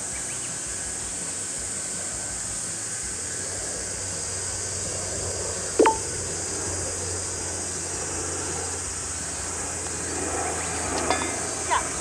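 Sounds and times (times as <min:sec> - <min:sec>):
steady high hiss: 0:00.0 - 0:05.2
putter striking golf ball: 0:05.8 - 0:06.3.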